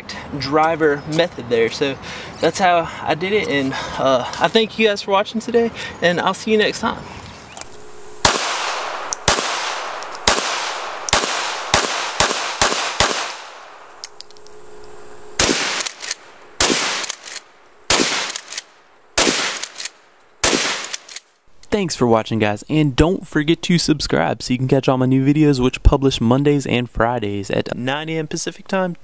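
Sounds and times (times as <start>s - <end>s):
gunshots with echo: 8.2s - 13.9s, 15.4s - 17.3s, 17.9s - 18.6s, 19.2s - 19.8s, 20.4s - 21.0s.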